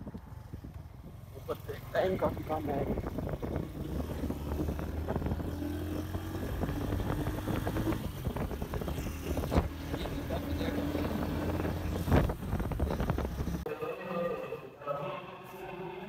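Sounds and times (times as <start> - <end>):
small motorcycle engine running: 0.0 - 13.6.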